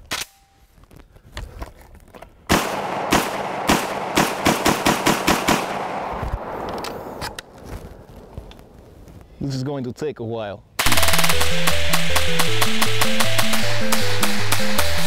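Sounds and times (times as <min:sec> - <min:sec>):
shotgun shots echoing: 0:02.5 - 0:08.3, 0:10.8 - 0:15.0.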